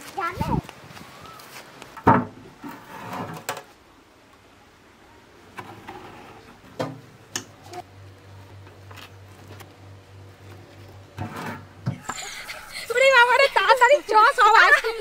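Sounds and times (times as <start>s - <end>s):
low steady hum: 6.6s - 15.0s.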